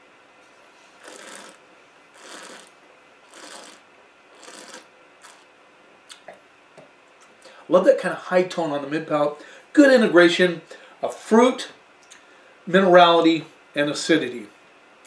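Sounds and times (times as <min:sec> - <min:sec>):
slurping wine: 0:01.0 - 0:01.6, 0:02.2 - 0:02.7, 0:03.3 - 0:03.8, 0:04.4 - 0:05.4.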